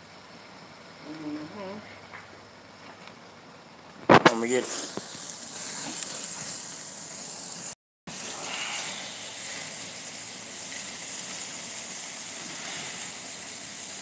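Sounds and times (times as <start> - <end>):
steaks sizzling on charcoal grill: 0.0 - 14.0.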